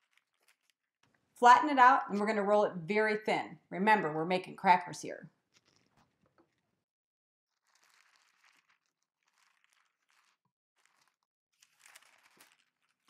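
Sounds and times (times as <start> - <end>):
parchment paper rustling: 0.0 - 0.8, 5.5 - 6.6, 7.5 - 13.0
parchment paper crinkling: 0.0 - 0.9, 5.5 - 6.6, 7.5 - 13.0.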